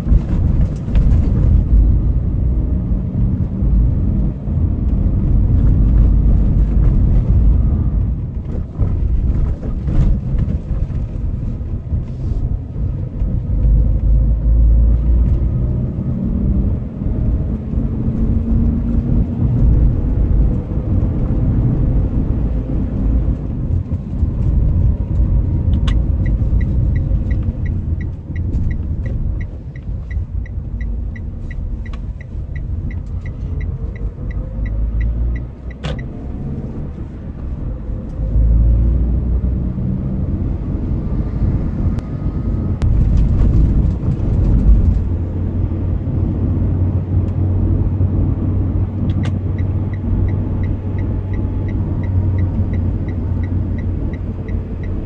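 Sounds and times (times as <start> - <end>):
car engine and road rumble: 0.0 - 55.0
turn signal ticking: 16.8 - 38.8, 40.8 - 55.0.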